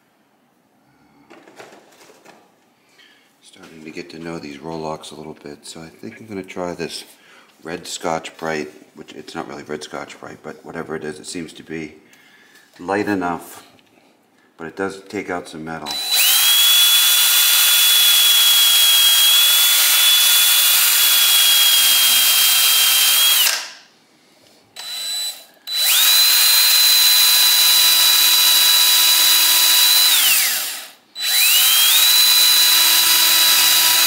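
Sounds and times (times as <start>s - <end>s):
die grinder high whine: 15.9s - 23.7s, 24.8s - 34.0s.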